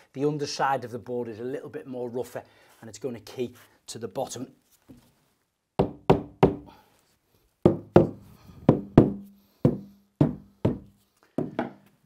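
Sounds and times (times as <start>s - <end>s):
rubber mallet knocking on board: 5.8s - 6.7s, 7.7s - 11.8s.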